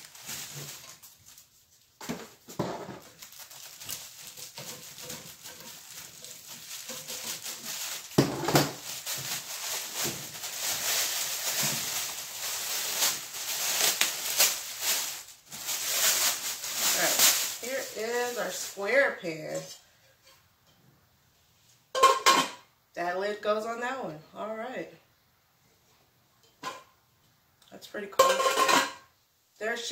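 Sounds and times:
plastic wrapping crinkling: 0.0s - 19.2s.

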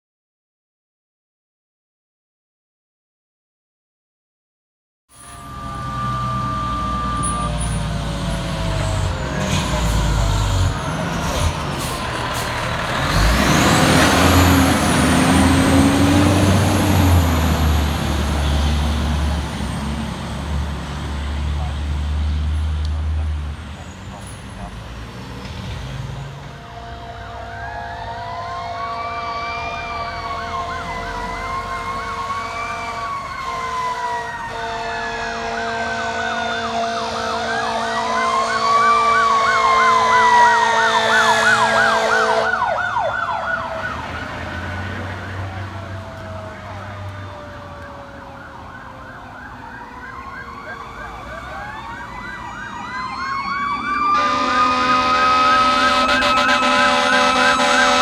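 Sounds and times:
fire truck siren wail and yelp: 5.1s - 58.0s
siren winding up: 5.2s - 11.0s
horn blaring: 5.2s - 21.7s, 26.0s - 48.0s, 50.0s - 58.0s.

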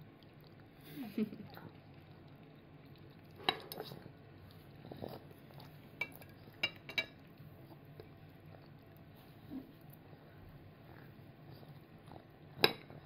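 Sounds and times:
small spoon clinking against a bowl: 6.0s - 7.2s.

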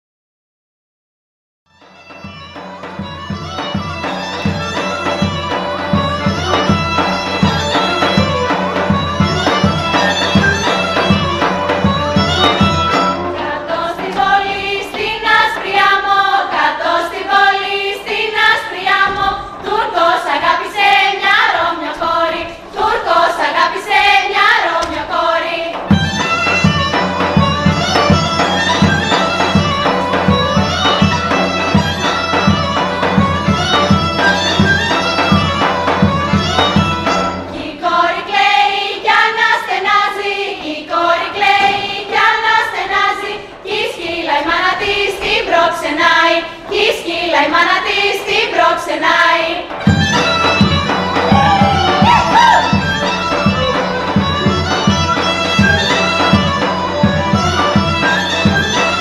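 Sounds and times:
bagpipe folk music: 1.7s - 43.1s, 47.3s - 59.0s
heavy drum beat: 49.9s - 53.0s.

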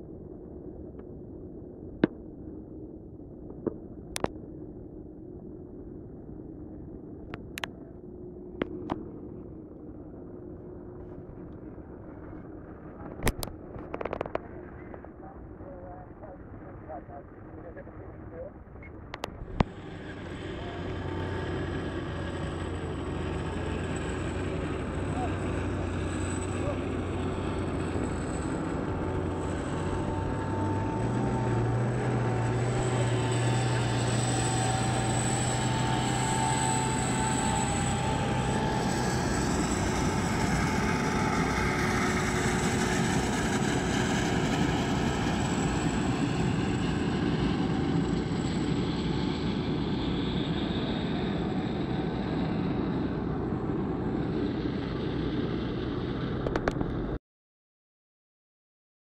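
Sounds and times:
high steady whine: 0.0s - 57.2s
low hum: 0.0s - 57.2s
vehicle engine noise: 19.1s - 57.2s.

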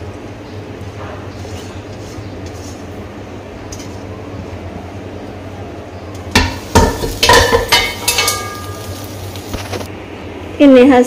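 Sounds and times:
metal wok and ladle clanking: 6.3s - 9.4s.

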